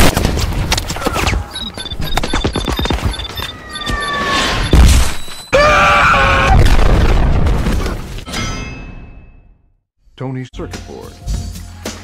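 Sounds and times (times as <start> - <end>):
short electronic beeps: 1.2 - 5.5
loud explosion: 6.4 - 7.8.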